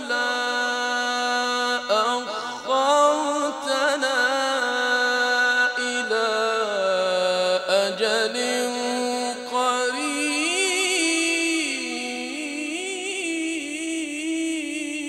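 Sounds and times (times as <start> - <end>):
man chanting melodically: 0.0 - 15.0.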